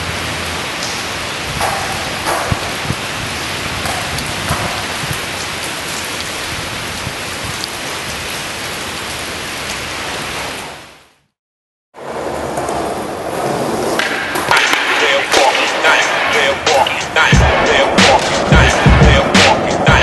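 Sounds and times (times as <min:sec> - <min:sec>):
steady rain: 0:00.0 - 0:11.4, 0:14.4 - 0:20.0.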